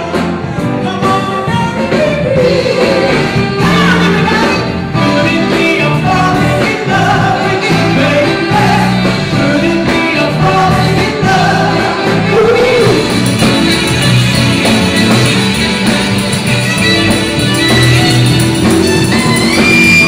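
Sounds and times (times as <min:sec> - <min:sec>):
person singing: 0:00.0 - 0:14.0
bass line: 0:00.0 - 0:20.0
keyboards: 0:00.0 - 0:20.0
soul-jazz band playing: 0:00.0 - 0:20.0.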